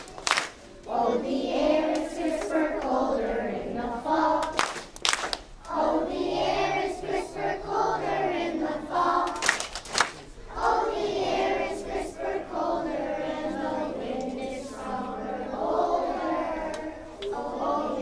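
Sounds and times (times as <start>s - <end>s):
sharp claps: 0.0s - 0.6s, 4.4s - 5.5s, 9.2s - 10.3s
crowd singing together: 0.8s - 5.0s, 5.6s - 9.6s, 10.3s - 18.0s.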